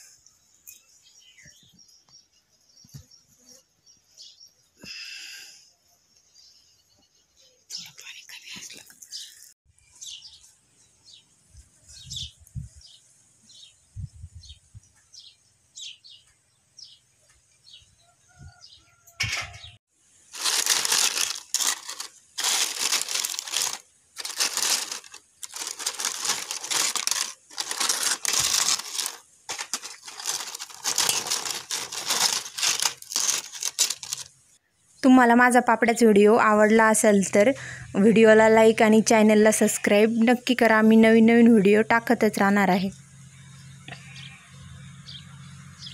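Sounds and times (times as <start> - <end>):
dry wafers crackling and rustling: 20.3 - 34.3.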